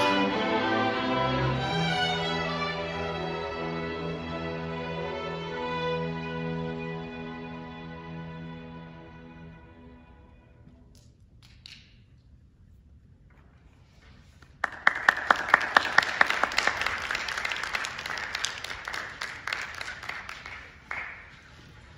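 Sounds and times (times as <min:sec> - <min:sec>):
loud claps close by: 0:14.6 - 0:21.4
audience applauding: 0:14.6 - 0:21.8.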